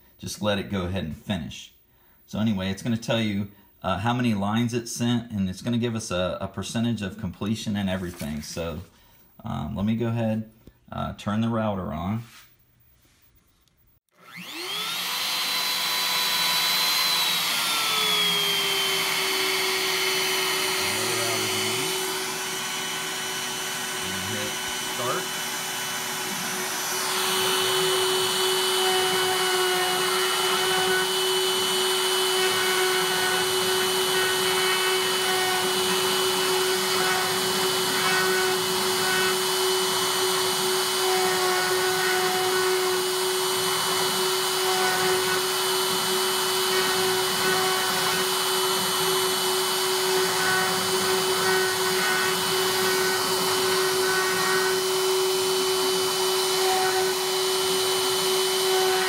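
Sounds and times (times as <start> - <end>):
router bit cutting wood: 14.1 - 59.0
router motor whine: 14.1 - 59.0.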